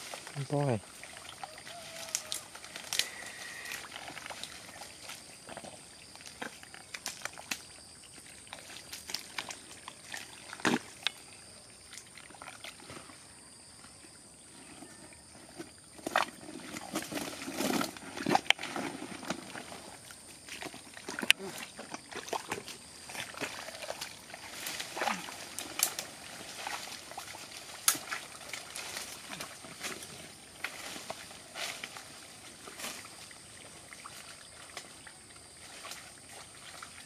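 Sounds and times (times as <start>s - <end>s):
twigs and leaves crackling: 0.0s - 7.8s, 20.5s - 33.4s
wet mud squelching: 0.0s - 13.2s, 16.0s - 37.0s.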